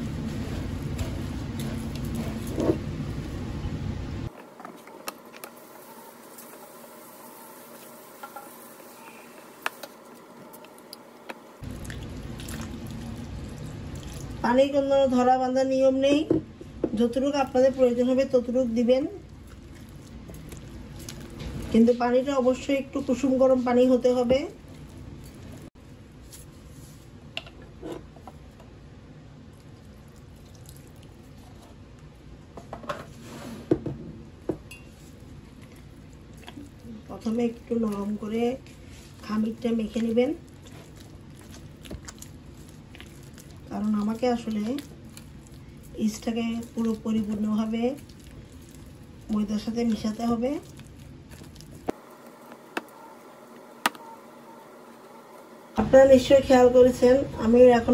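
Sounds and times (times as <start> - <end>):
spatula stirring sticky dough: 0.0 - 2.8, 17.1 - 27.1, 34.8 - 54.2.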